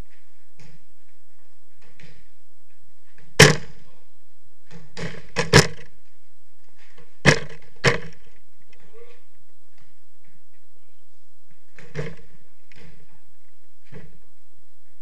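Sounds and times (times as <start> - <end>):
football thumping off walls: 0.0 - 3.8, 4.6 - 8.4, 11.5 - 15.0.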